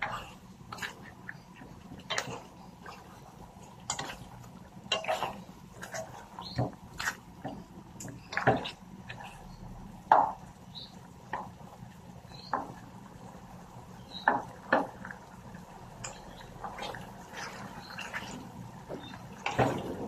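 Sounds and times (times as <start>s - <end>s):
spatula scraping a pan: 0.0s - 9.5s.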